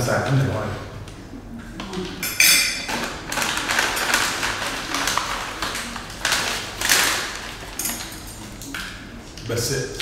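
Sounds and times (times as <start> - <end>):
plastic bags rustling: 1.9 - 9.7.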